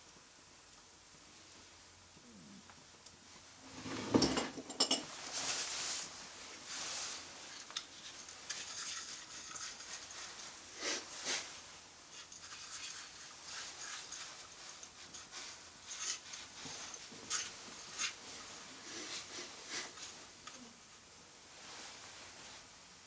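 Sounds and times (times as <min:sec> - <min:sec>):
soft rustles and hisses: 0:00.0 - 0:23.0.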